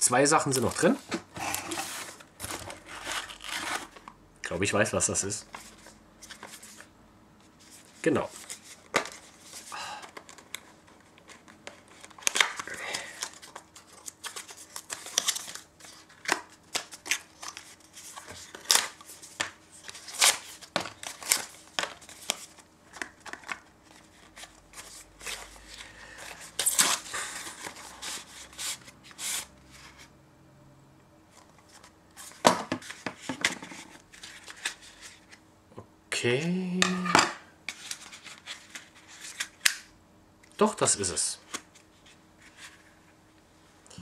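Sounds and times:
plastic packaging crinkling: 1.6s - 4.0s.

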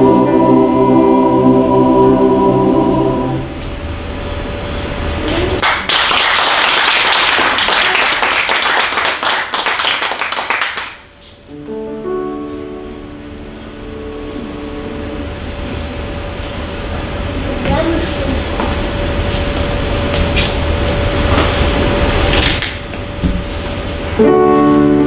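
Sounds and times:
audience applause: 5.6s - 11.0s
piano playing soft chords: 11.5s - 17.0s, 24.1s - 25.0s.

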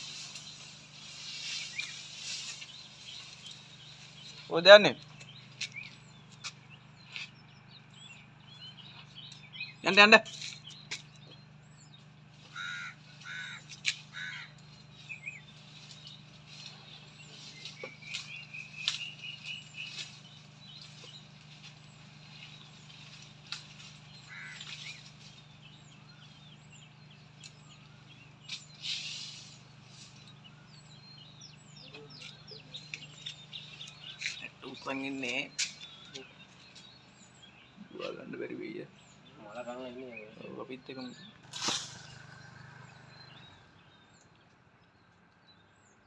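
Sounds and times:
birds chirping: 0.0s - 46.0s
crows cawing: 12.5s - 14.6s, 24.3s - 25.0s
bird trilling: 12.5s - 15.4s, 23.6s - 25.2s
sharp snaps: 41.4s - 42.3s
brief rustle: 41.5s - 42.3s.

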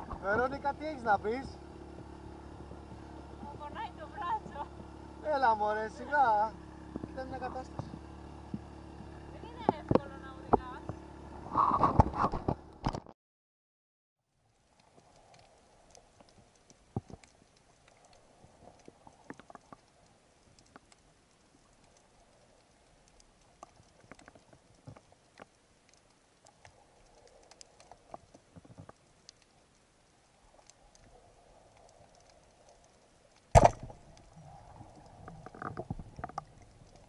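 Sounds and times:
faint underwater clicks and knocks: 0.0s - 5.0s, 6.8s - 13.1s, 14.5s - 37.0s
spear knocking among rocks: 33.5s - 34.0s
speargun firing crack: 33.5s - 34.0s.

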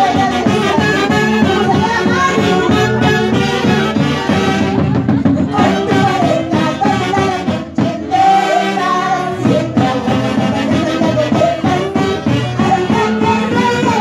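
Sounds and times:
saxophones: 0.0s - 5.0s, 5.6s - 14.0s
drum beating steadily: 0.0s - 14.0s
woman singing: 0.0s - 14.0s.

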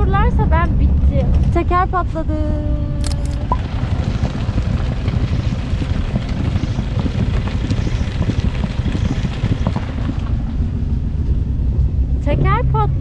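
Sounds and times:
vehicle rumbling on stony road: 0.0s - 13.0s
wind buffeting microphone: 0.0s - 13.0s.

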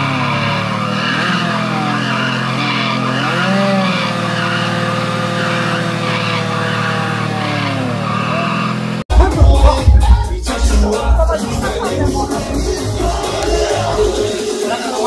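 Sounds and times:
tyre squealing: 0.0s - 9.0s
motorcycle engine revving: 0.0s - 10.0s.

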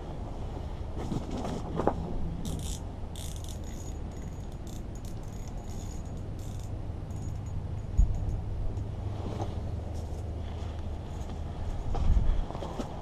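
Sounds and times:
fishing reel cranking clicks: 2.4s - 8.4s.

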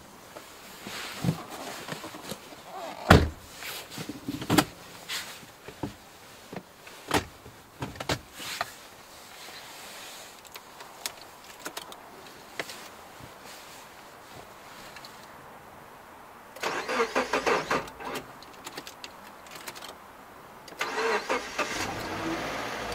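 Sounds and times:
clothing and seat rustling: 0.0s - 15.3s
car door slamming: 3.0s - 3.4s.

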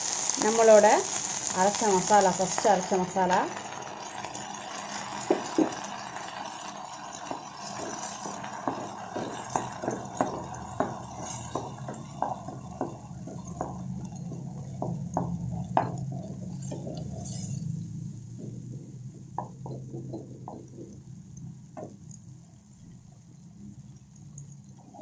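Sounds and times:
paste sizzling in oil: 0.0s - 17.9s
spatula knocking against pan: 5.3s - 5.8s, 7.3s - 17.2s, 18.4s - 21.0s.

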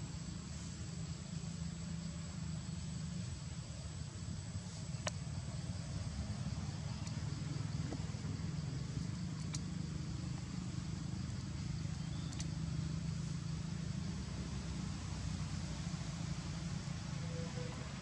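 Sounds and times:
low background rumble: 0.0s - 18.0s
faint clicks: 7.0s - 7.3s, 9.4s - 9.7s, 12.1s - 12.6s.

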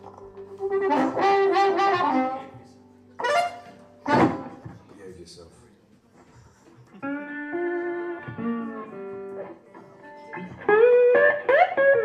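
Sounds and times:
blues harmonica playing: 0.6s - 2.6s, 3.2s - 4.6s.

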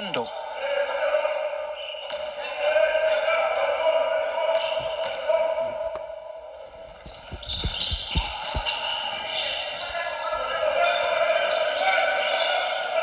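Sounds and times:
basketball bouncing on hardwood: 7.0s - 9.0s
scattered knocks: 7.2s - 8.8s.

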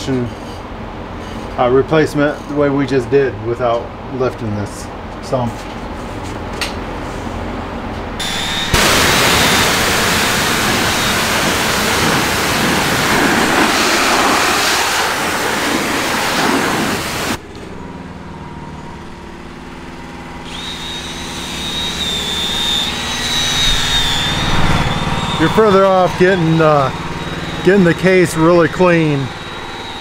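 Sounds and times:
pressure washer jet hissing: 8.2s - 17.4s, 20.5s - 30.0s
high thin whine: 8.2s - 17.8s, 20.4s - 30.0s
steady hum: 8.2s - 30.0s.

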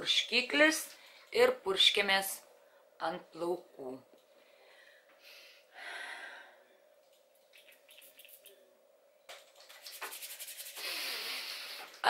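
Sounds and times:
palms rubbing together: 7.5s - 8.5s, 9.4s - 12.0s
spray bottle spritz: 9.8s - 11.2s.

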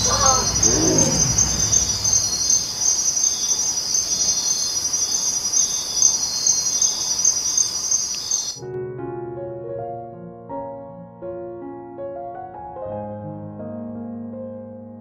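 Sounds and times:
insects trilling: 0.0s - 8.6s.

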